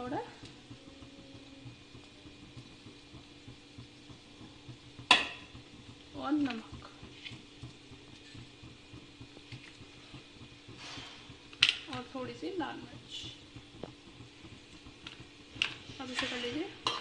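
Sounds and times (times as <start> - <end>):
filling sizzling in a pan: 0.0 - 17.0
spoon knocking on metal pan: 5.1 - 5.5.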